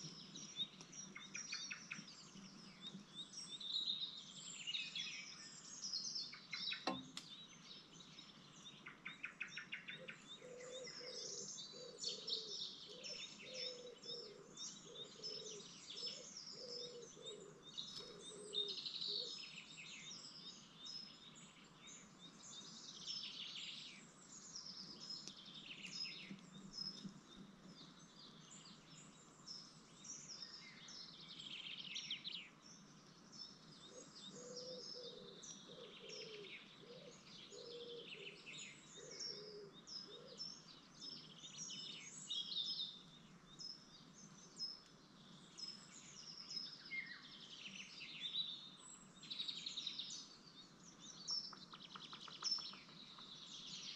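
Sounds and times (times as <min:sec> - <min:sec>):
small birds chirping: 0:00.0 - 0:53.9.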